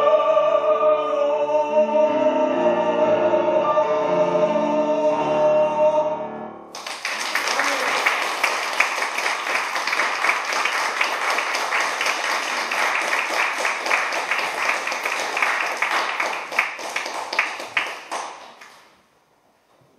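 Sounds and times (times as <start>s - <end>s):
audience applauding: 6.7s - 18.9s.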